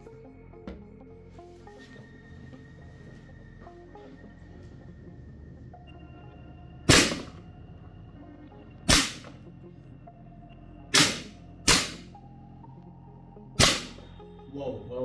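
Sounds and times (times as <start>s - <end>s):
air rifle shots cracking: 6.9s - 7.4s, 8.9s - 9.3s, 11.0s - 12.1s, 13.6s - 14.0s.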